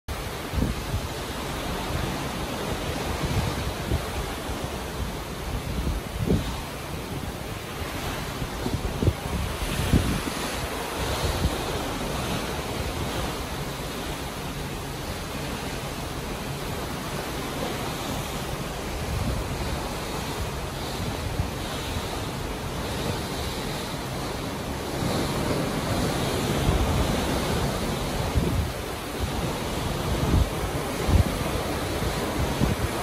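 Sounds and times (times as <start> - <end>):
water rushing along ship hull: 0.1 - 33.0
wind buffeting microphone: 0.1 - 33.0.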